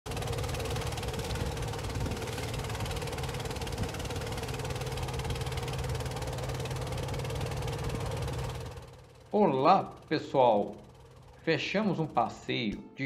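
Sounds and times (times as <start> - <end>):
boat engine running: 0.1 - 12.7.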